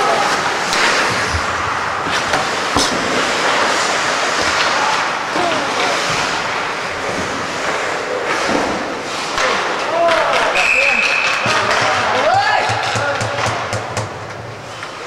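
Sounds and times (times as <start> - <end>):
skates hissing on ice: 0.2 - 9.8.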